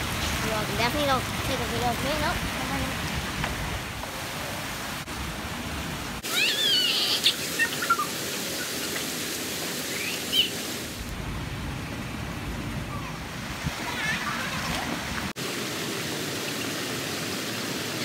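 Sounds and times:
fountain jets splashing water: 0:00.0 - 0:18.0
child squealing: 0:06.2 - 0:08.1.

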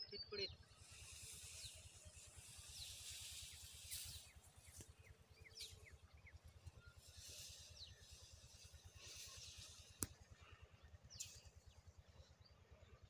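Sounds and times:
rustle of wheat stalks: 0:00.6 - 0:10.2.

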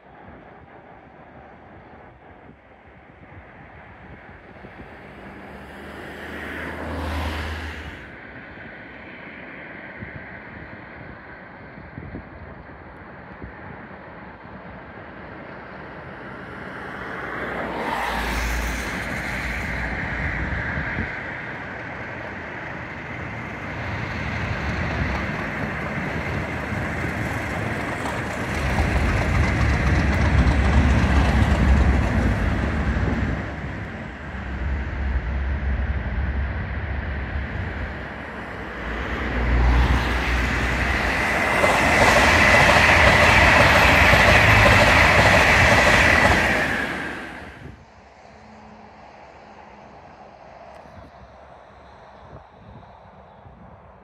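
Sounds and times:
electric train rushing past: 0:00.0 - 0:11.8, 0:12.6 - 0:53.9
diesel locomotives rumbling: 0:00.0 - 0:54.0.

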